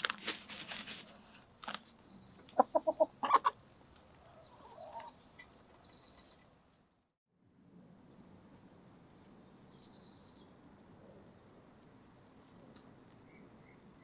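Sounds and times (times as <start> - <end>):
hens clucking: 2.4 - 3.6, 4.2 - 5.2.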